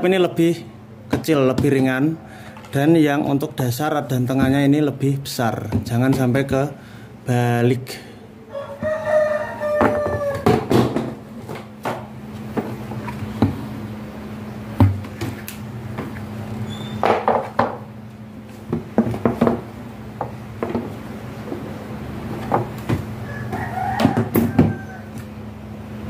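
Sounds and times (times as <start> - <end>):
steady low hum: 0.0 - 26.0
chicken calling: 8.4 - 10.6, 23.2 - 25.4.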